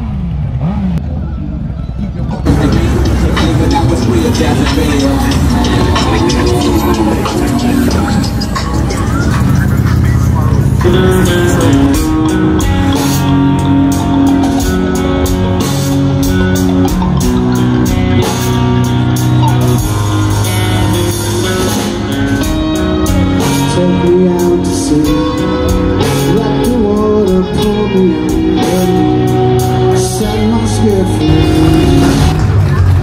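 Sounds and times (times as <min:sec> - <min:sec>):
bass guitar: 0:00.0 - 0:33.0
electric guitars: 0:02.3 - 0:33.0
man singing: 0:02.4 - 0:12.3, 0:23.4 - 0:32.4
drum kit with cymbal hits: 0:02.4 - 0:33.0.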